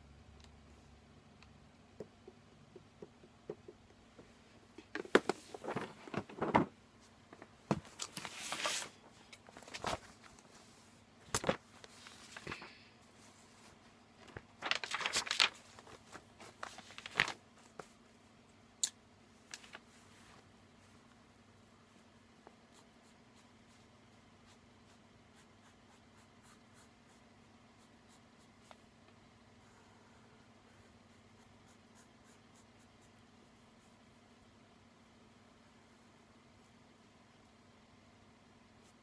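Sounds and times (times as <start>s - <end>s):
paper pages rustling: 5.0s - 6.7s, 7.4s - 18.0s, 19.4s - 20.4s.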